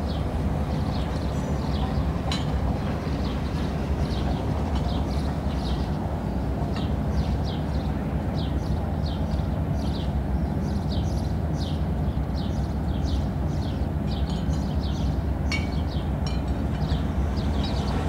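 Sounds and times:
small birds chirping: 3.3 - 16.2.

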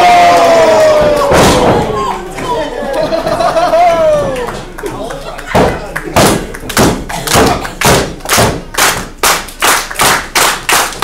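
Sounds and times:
thuds and slaps in wrestling ring: 1.0 - 2.0.

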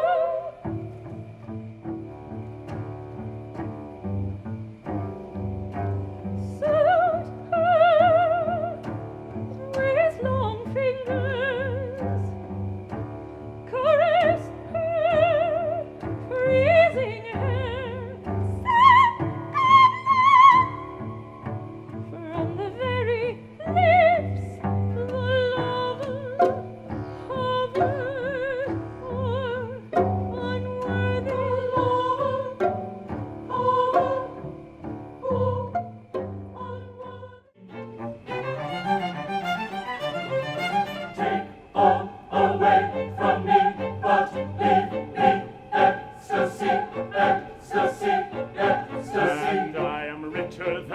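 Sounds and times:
soprano singing with vibrato: 0.0 - 0.6, 6.5 - 8.9, 9.6 - 12.3, 13.7 - 21.3, 22.0 - 37.6, 38.5 - 50.9
low bowed strings: 0.0 - 50.9.

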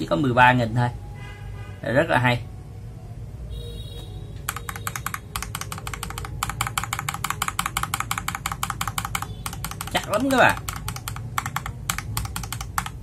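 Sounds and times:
mechanical keyboard typing: 4.4 - 13.0.

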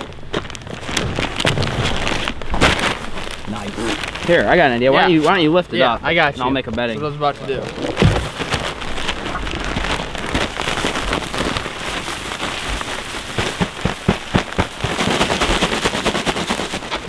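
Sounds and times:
plastic bag crackles: 0.0 - 17.0
wood shavings pouring rustling: 0.8 - 5.4, 7.4 - 17.0.

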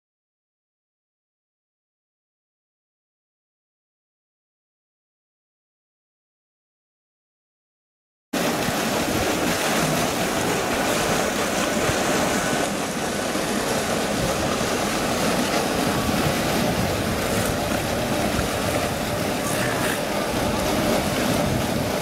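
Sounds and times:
pool water rushing: 8.4 - 22.0
sea lion splashing: 8.4 - 22.0.

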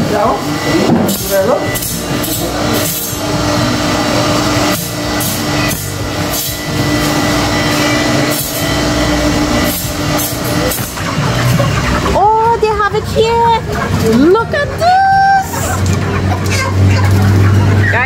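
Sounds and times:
motor hum: 0.0 - 18.0
grinding wheel sharpening knife: 0.6 - 12.2.

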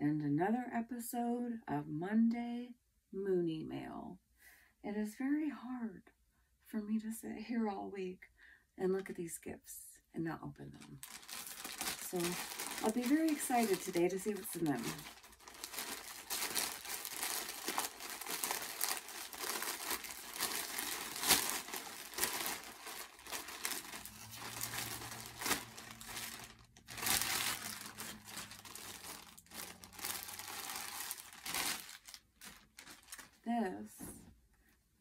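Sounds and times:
plastic bag crinkling: 10.8 - 33.5.

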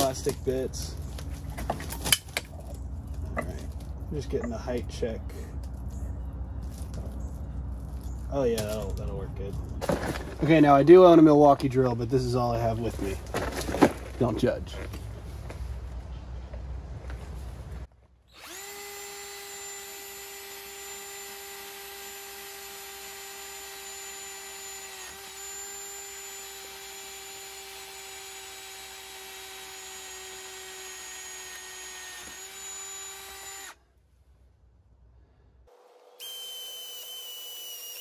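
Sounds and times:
cordless drill whining: 18.3 - 33.8, 36.2 - 38.0.

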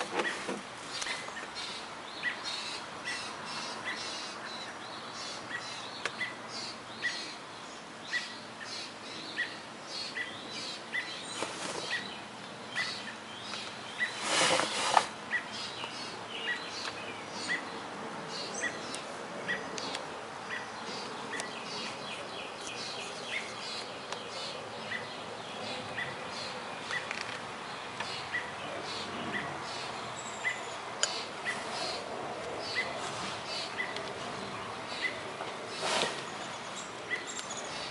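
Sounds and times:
birds chirping: 0.0 - 37.9
loud rustle: 11.3 - 12.1, 14.0 - 15.2, 35.7 - 36.7.

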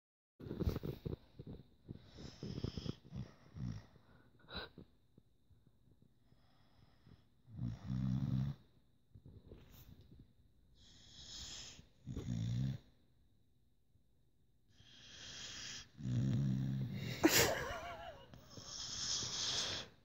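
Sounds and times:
dog snoring: 0.4 - 4.8, 6.3 - 9.6, 10.8 - 13.0, 14.7 - 17.3, 18.4 - 19.9.

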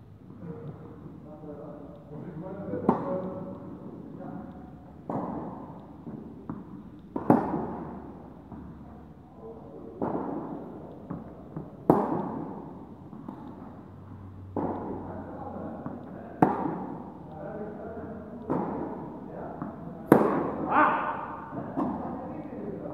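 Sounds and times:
tennis ball hit by rackets: 5.0 - 8.8, 9.9 - 17.2, 18.4 - 22.1.

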